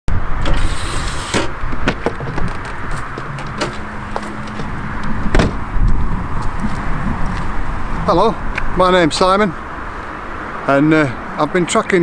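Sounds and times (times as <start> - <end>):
person stepping down: 1.2 - 7.5.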